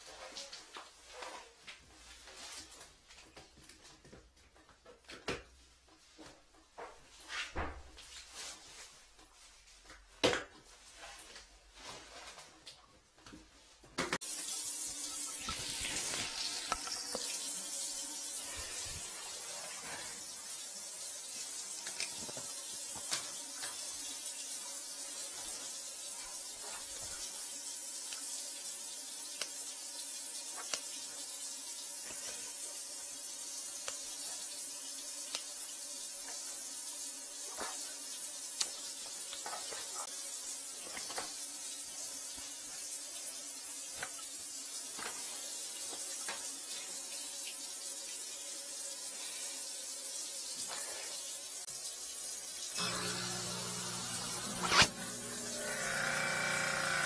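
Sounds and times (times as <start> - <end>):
water running with a hiss: 0.0 - 4.0, 13.6 - 57.0.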